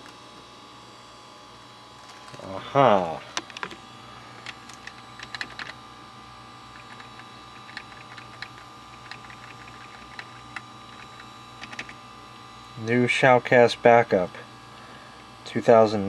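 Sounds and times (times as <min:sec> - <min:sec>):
steady electrical hum: 0:00.0 - 0:16.0
keyboard clicks: 0:04.4 - 0:05.8, 0:06.8 - 0:12.0.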